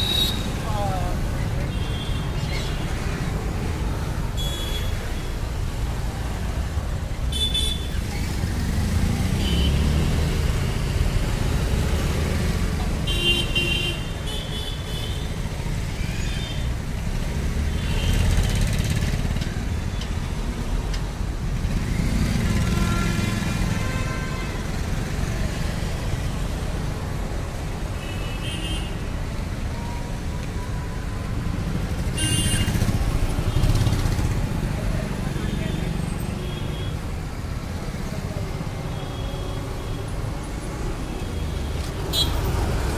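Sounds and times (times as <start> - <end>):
traffic rumble: 0.0 - 42.9
vehicle horns honking: 32.1 - 32.8, 41.4 - 42.5.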